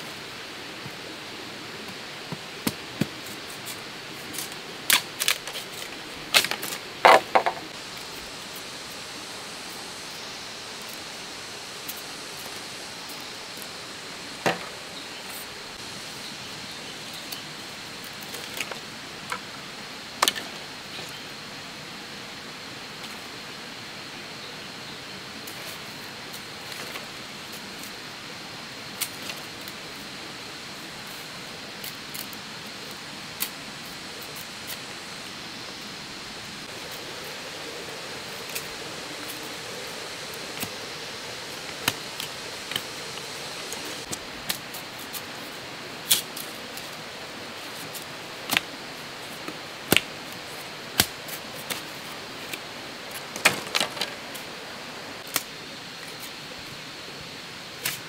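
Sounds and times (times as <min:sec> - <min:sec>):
forest ambience hiss: 0:00.0 - 0:58.0.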